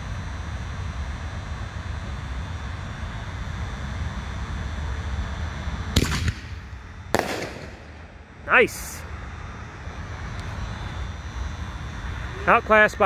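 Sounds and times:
firework shell launch thump: 0:06.0 - 0:07.9
firework shell bang: 0:06.0 - 0:08.0.

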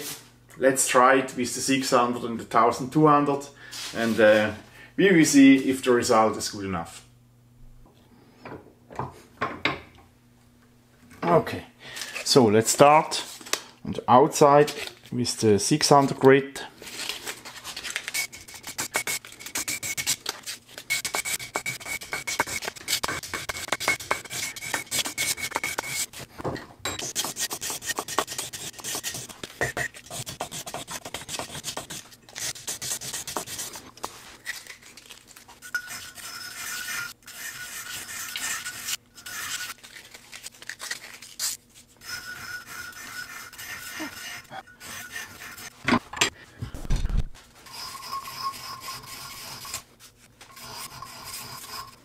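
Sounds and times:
sandpaper rasping on steel: 0:18.1 - 0:26.2, 0:27.0 - 0:33.8, 0:35.8 - 0:39.8, 0:42.0 - 0:45.8, 0:47.6 - 0:49.8, 0:50.5 - 0:52.0.

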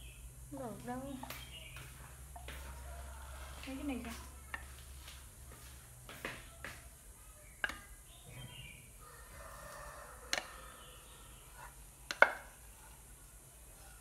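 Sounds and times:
utensils tapping pan and bowl: 0:07.6 - 0:08.0, 0:11.6 - 0:12.6
spatula scraping saucepan: 0:11.3 - 0:11.8.

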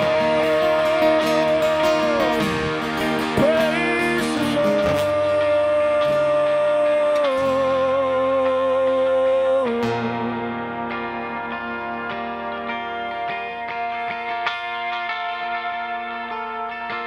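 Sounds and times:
drums: 0:00.0 - 0:08.3
bass guitar: 0:00.0 - 0:17.0
electric guitars: 0:00.0 - 0:17.0
live band playing: 0:00.0 - 0:17.0.

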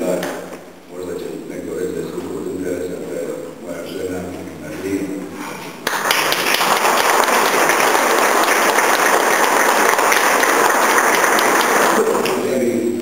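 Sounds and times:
audience applauding: 0:05.8 - 0:12.6.

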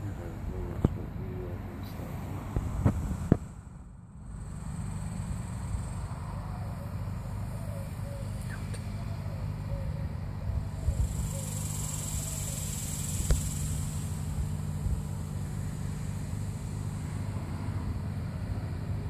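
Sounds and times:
high insect buzz: 0:04.2 - 0:06.4, 0:10.8 - 0:18.9.

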